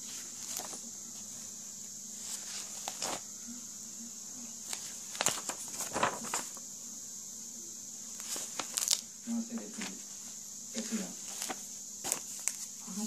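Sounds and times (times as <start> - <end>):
book pages rustling: 0.0 - 1.5, 2.2 - 3.3, 4.6 - 6.6, 8.1 - 12.8
steady hiss: 0.0 - 13.0.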